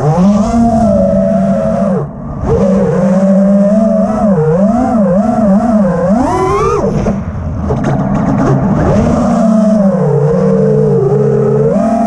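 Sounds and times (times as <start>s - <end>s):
quadcopter motors whining: 0.0s - 7.0s.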